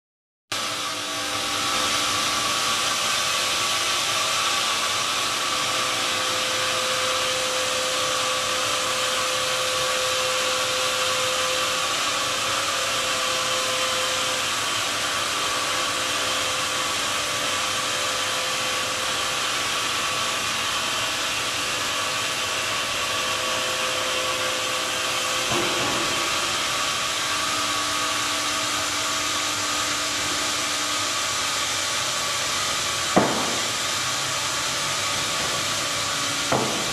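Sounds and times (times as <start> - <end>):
sawdust blower air rush: 0.5 - 36.9
brief knock: 33.2 - 33.7.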